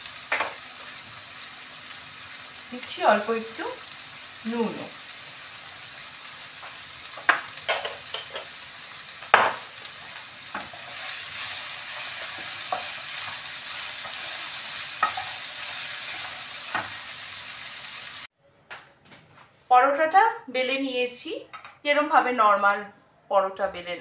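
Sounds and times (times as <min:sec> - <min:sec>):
onions sizzling in oil: 0:00.0 - 0:18.3.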